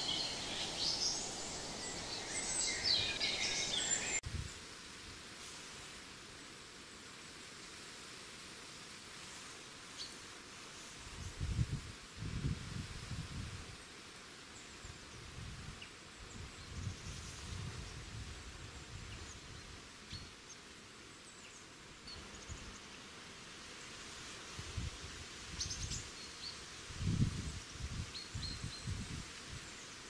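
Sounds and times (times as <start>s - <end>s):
wind gusts buffeting microphone: 26.9s - 29.2s.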